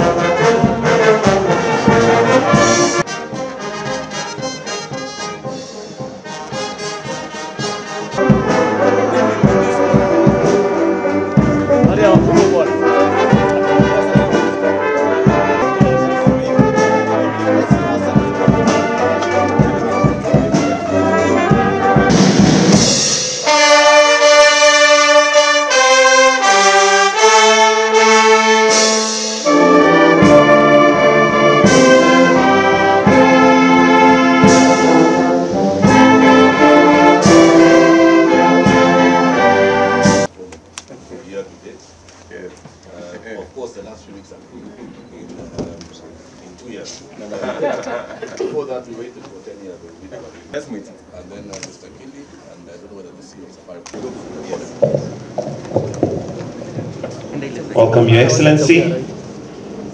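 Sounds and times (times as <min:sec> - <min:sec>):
steady drum beat: 0:00.0 - 0:24.1, 0:28.7 - 0:40.3, 0:54.0 - 0:58.8
brass band playing: 0:00.0 - 0:40.3, 0:54.0 - 0:59.9.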